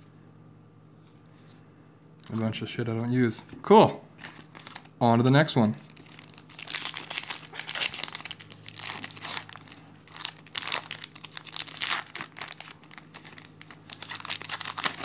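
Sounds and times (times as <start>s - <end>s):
foil wrapper tearing and crinkling: 4.2s - 4.9s, 5.8s - 15.0s.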